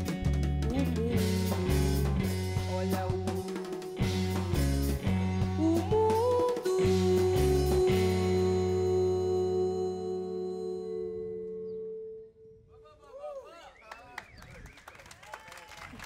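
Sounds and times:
band music: 0:00.0 - 0:11.7.

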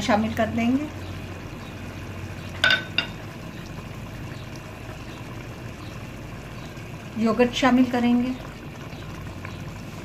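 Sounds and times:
curry bubbling in a pot: 0:00.0 - 0:10.0
utensil clinking on metal pot: 0:02.6 - 0:03.2.

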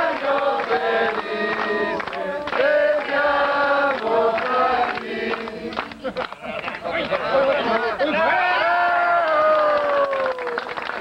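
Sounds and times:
group singing a birthday song: 0:00.0 - 0:06.2
hand-clapping: 0:00.1 - 0:07.9, 0:09.2 - 0:11.0.

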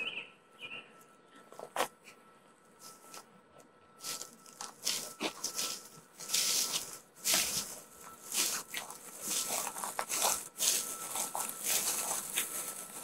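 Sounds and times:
brush rustling: 0:04.0 - 0:13.0
footsteps crunching on dry ground: 0:04.0 - 0:13.0.

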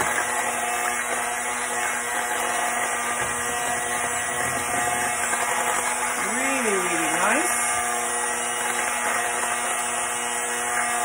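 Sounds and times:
electric hand mixer whipping: 0:00.0 - 0:11.0.

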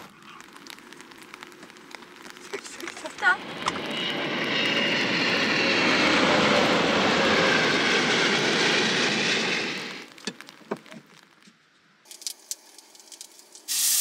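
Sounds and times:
jet engine roar overhead: 0:00.0 - 0:10.4.

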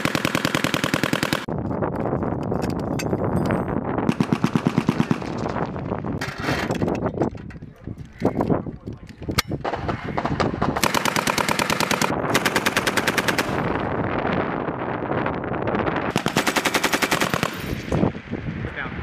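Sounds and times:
machine gun automatic fire: 0:00.0 - 0:01.5, 0:04.1 - 0:05.4, 0:09.6 - 0:13.6, 0:16.1 - 0:17.9
rumbling gunfire: 0:04.0 - 0:05.9, 0:09.5 - 0:14.8, 0:16.1 - 0:18.6.

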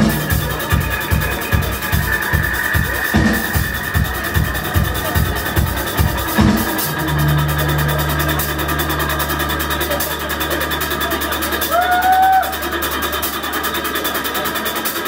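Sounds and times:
hi-hat ticking: 0:00.0 - 0:15.0
held low bass note: 0:04.0 - 0:13.9.

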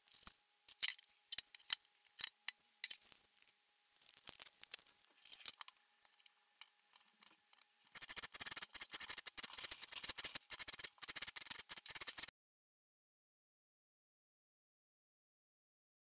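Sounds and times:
lime rasping on metal grater: 0:07.9 - 0:12.3.

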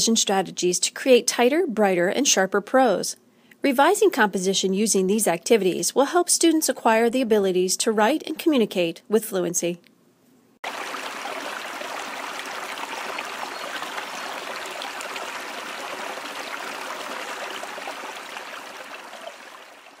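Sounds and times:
small stream babbling: 0:10.6 - 0:20.0.

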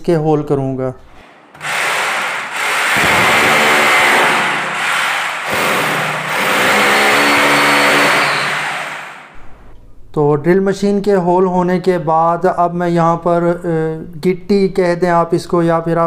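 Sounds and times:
electric drill boring into wall: 0:01.2 - 0:09.4.

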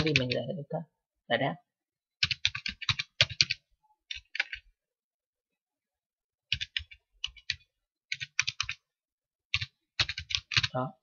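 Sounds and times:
computer keyboard typing: 0:00.0 - 0:00.5, 0:02.2 - 0:04.8, 0:06.5 - 0:08.9, 0:09.5 - 0:10.8.

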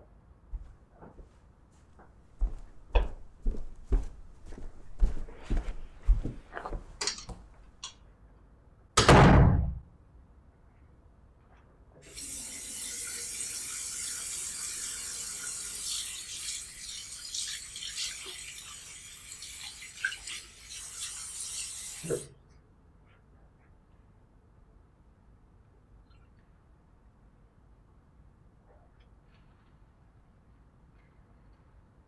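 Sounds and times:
hands rinsed under water: 0:12.0 - 0:22.3.

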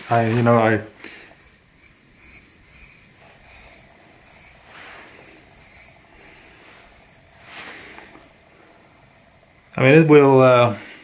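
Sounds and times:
knife blade scraping skin: 0:00.3 - 0:07.9.

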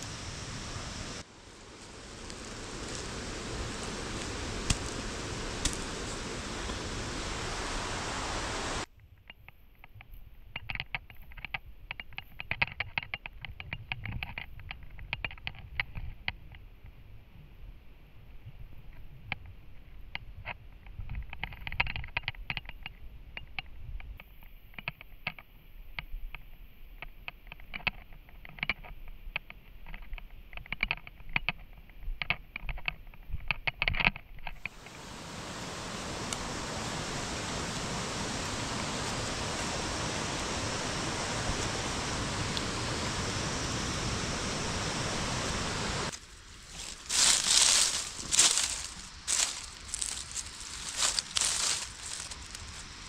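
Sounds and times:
steady rushing noise: 0:00.0 - 0:08.9, 0:34.6 - 0:53.0
footsteps rustling through dry leaves: 0:01.2 - 0:08.9, 0:34.7 - 0:53.0.

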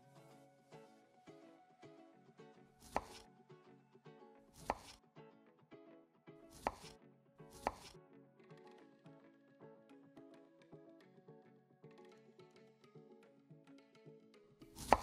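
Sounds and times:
knife chopping on wooden board: 0:02.8 - 0:03.2, 0:04.6 - 0:05.0, 0:06.6 - 0:06.9, 0:07.6 - 0:07.9, 0:14.8 - 0:15.0.

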